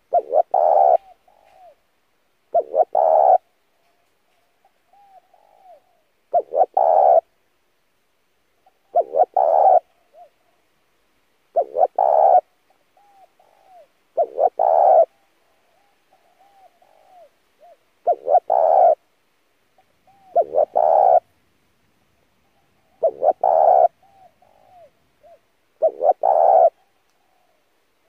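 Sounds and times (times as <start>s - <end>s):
dove cooing: 0.0s - 1.8s, 2.5s - 3.5s, 4.3s - 7.3s, 8.6s - 10.6s, 11.5s - 19.0s, 19.8s - 21.3s, 22.2s - 27.8s.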